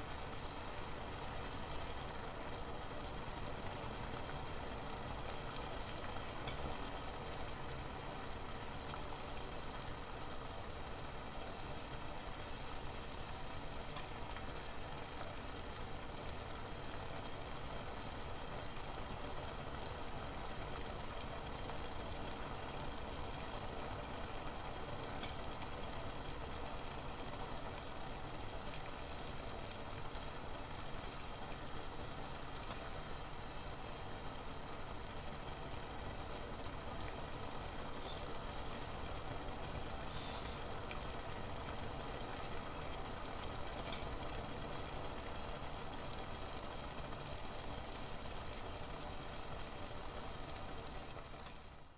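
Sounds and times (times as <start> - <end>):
water heating in saucepan: 0.0 - 51.9.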